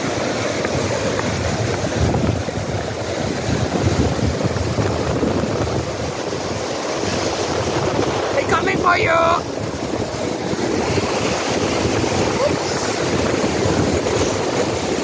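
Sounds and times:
fast river rushing: 0.0 - 15.0
wind gusting over microphone: 0.0 - 15.0.

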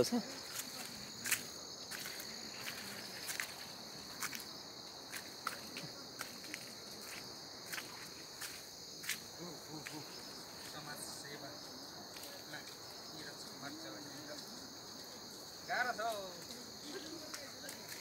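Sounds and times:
high-pitched insect drone: 0.0 - 17.2
footsteps on muddy dirt track: 0.3 - 10.8.

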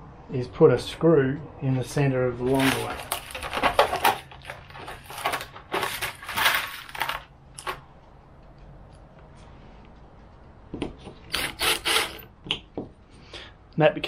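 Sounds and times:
screws clinking and rattling: 2.5 - 7.8, 11.3 - 12.3.

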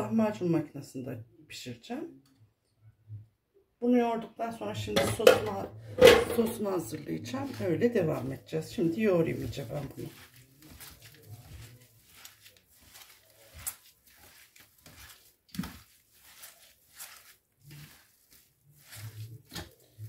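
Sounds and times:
hands kneading minced meat: 6.4 - 20.0.

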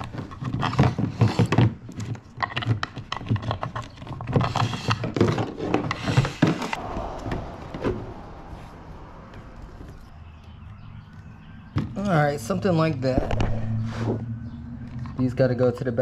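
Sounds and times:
wires scraping against plastic box: 0.0 - 6.8.

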